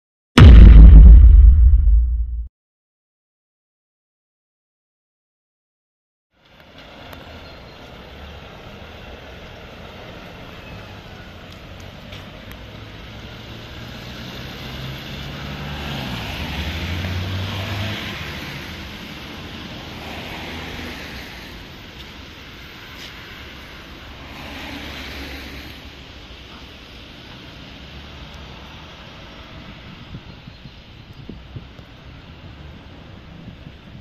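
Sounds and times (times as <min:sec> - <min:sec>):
tyres hissing on wet road: 0:06.4 - 0:34.0
wind on microphone: 0:29.7 - 0:31.9.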